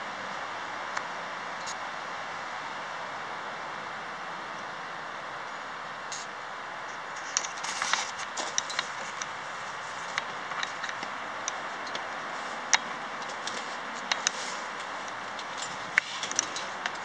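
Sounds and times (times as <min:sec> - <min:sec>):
steady hiss: 0:00.0 - 0:17.0
clicks scrapes and crunches: 0:07.2 - 0:09.3.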